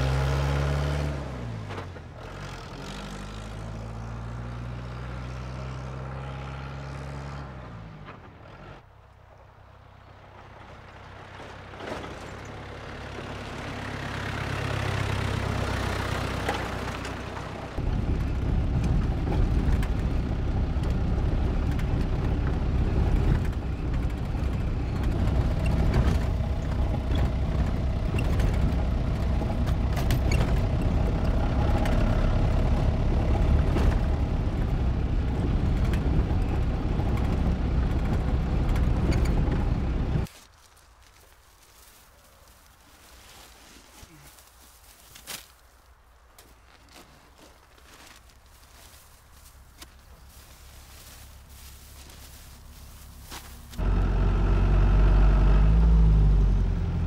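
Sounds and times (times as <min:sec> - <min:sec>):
vehicle engine passing: 0:00.0 - 0:08.9, 0:48.8 - 0:57.0
truck engine rumble inside cab: 0:00.0 - 0:40.3, 0:47.7 - 0:57.0.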